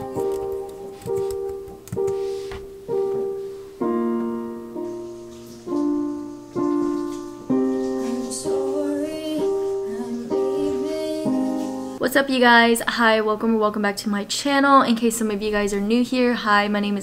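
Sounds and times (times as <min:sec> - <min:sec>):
slow gentle solo piano: 0:00.0 - 0:12.0.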